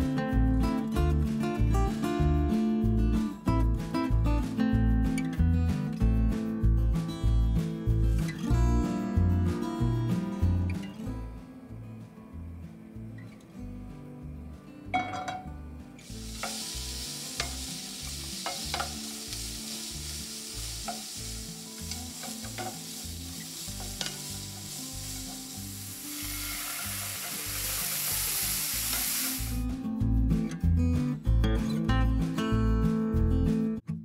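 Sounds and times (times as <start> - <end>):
vegetables sizzling in oil: 16.0 - 29.6.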